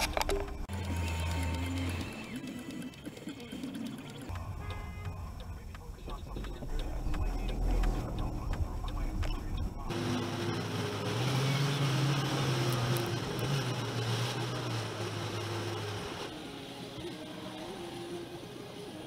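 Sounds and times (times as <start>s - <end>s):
car engine and road hum: 4.2s - 17.6s
low steady drone: 4.3s - 19.0s.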